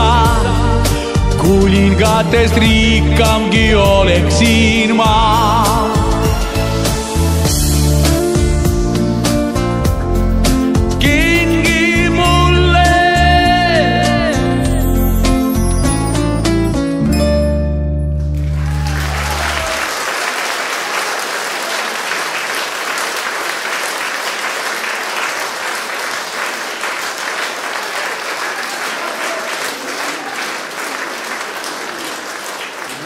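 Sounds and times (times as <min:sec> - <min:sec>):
audience applauding: 0:18.3 - 0:33.0.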